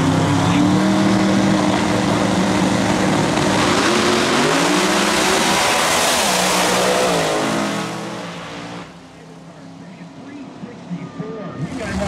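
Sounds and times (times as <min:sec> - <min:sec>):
drag car engines at full throttle: 0:00.0 - 0:12.0
car passing close with loud rush: 0:00.5 - 0:09.2.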